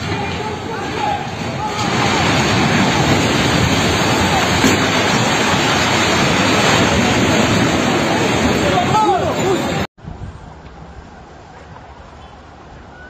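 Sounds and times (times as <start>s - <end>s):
building collapsing roar: 0.0s - 9.9s.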